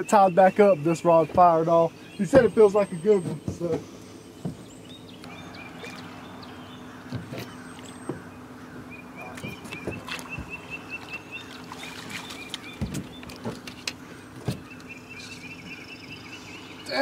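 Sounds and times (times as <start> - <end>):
low hum: 1.9 - 17.0
fish splashing: 5.3 - 15.4.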